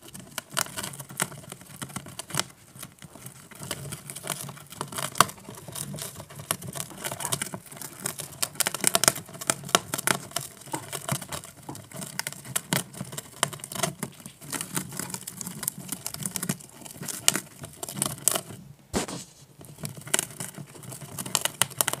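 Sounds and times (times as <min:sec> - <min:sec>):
gerbils gnawing cardboard: 0:00.0 - 0:22.0
cardboard tearing crackles: 0:18.9 - 0:19.5.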